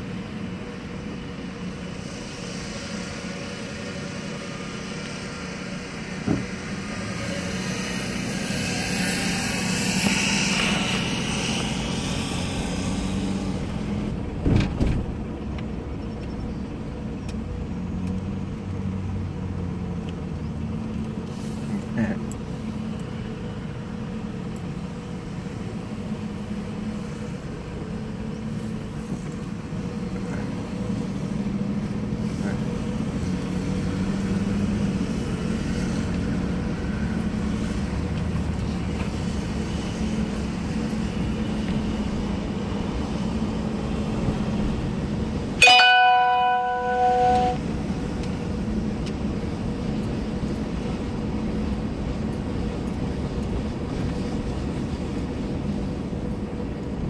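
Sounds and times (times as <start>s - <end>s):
car engine and tyre hum: 0.0s - 57.0s.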